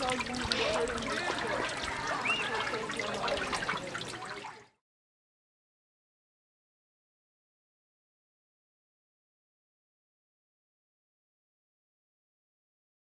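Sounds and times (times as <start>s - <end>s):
water trickling and lapping: 0.0s - 4.8s.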